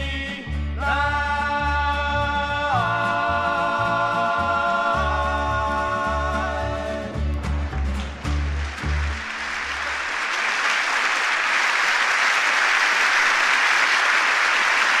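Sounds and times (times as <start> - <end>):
audience applauding: 7.3 - 15.0.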